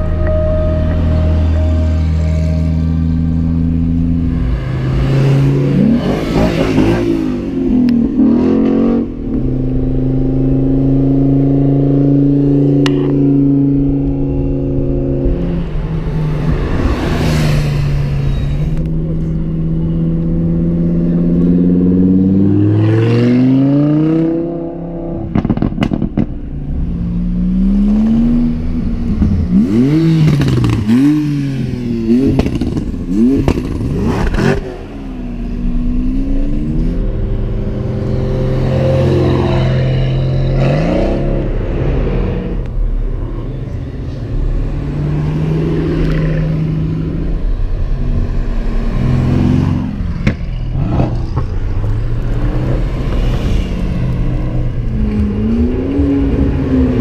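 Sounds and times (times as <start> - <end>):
engine revving: 0.0 - 26.3, 27.0 - 57.0
car engines accelerating hard: 0.0 - 57.0.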